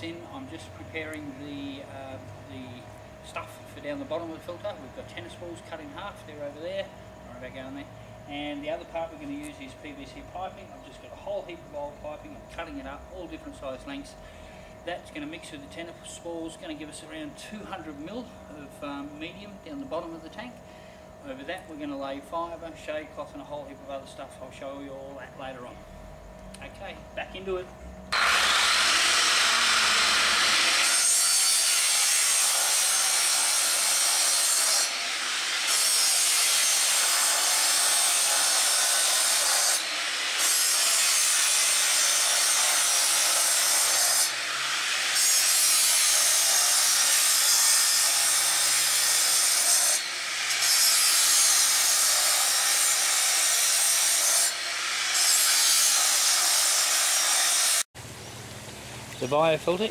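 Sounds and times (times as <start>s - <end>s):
saw cutting plastic pipe: 28.1s - 57.9s.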